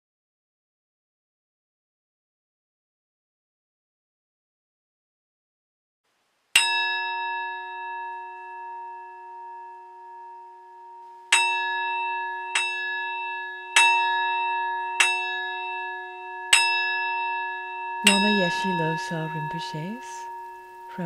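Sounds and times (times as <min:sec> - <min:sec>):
bell ringing: 0:06.6 - 0:21.0.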